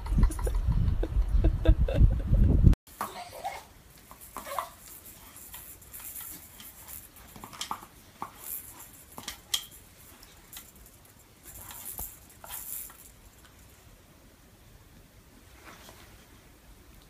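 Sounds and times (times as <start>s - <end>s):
soft rustles: 3.2s - 14.0s, 15.4s - 17.0s.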